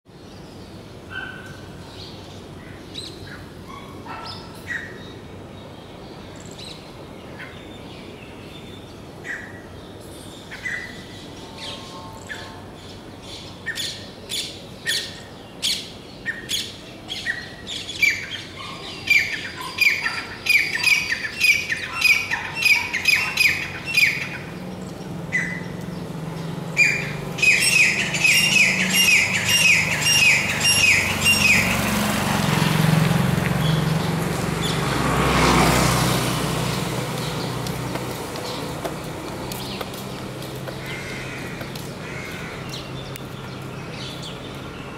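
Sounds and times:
francolin calling: 0:26.8 - 0:31.8.

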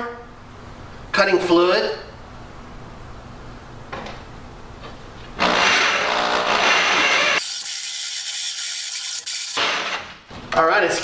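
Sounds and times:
drill hole saw cutting steel: 0:05.4 - 0:10.0.

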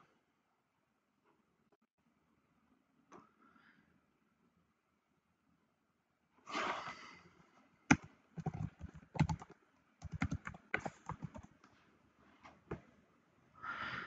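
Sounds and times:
computer keyboard typing: 0:07.9 - 0:11.5.

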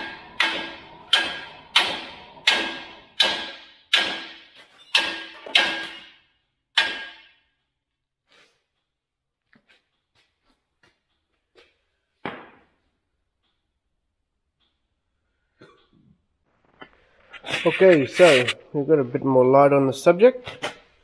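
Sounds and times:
hammer striking steel: 0:00.0 - 0:07.5.

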